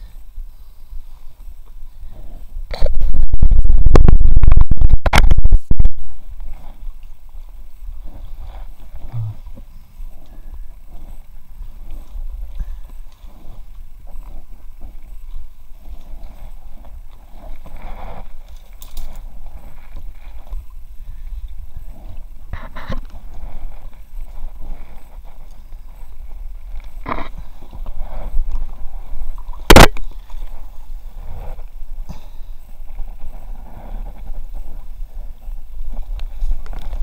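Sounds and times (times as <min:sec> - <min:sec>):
low rumbling handling noise: 0:01.3 - 0:37.0
reeds rustling and scraping: 0:10.2 - 0:37.0.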